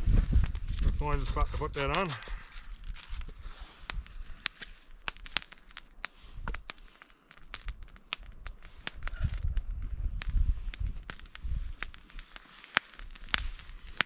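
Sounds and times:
campfire crackling: 0.0s - 14.0s.

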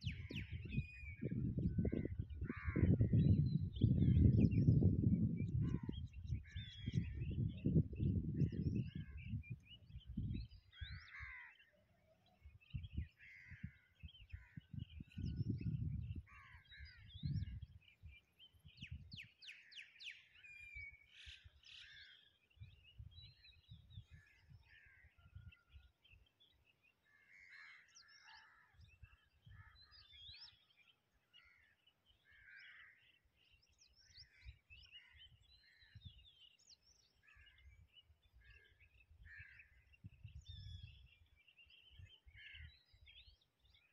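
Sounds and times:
wind buffeting microphone: 0.0s - 11.1s, 12.4s - 19.4s, 22.6s - 24.6s, 37.6s - 41.3s
birds chirping: 0.0s - 43.9s.

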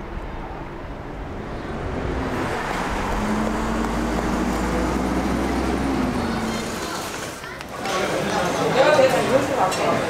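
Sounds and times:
vehicle engine passing: 0.0s - 7.4s.

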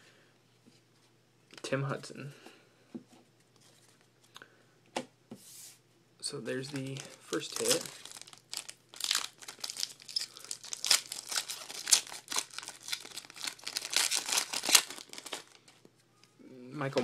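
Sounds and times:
foil wrapper tearing and crinkling: 6.6s - 15.7s.

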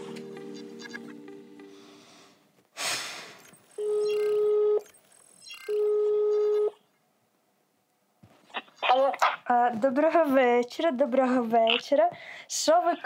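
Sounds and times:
phone ringing tone beeps: 3.5s - 6.8s.

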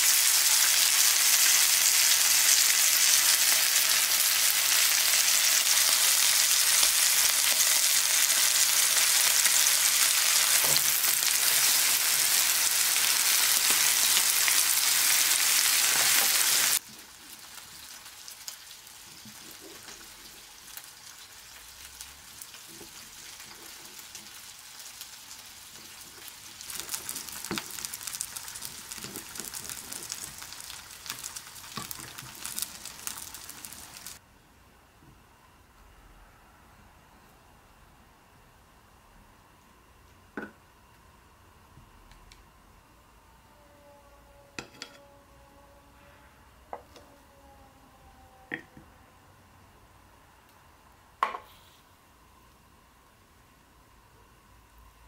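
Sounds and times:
steak sizzling in oil: 0.0s - 19.2s, 20.0s - 34.2s.

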